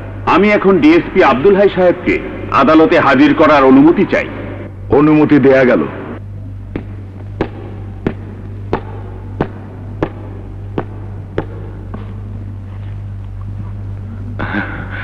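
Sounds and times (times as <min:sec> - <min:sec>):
low hum: 0:00.0 - 0:15.0
footsteps of hard-soled shoes: 0:06.7 - 0:13.8.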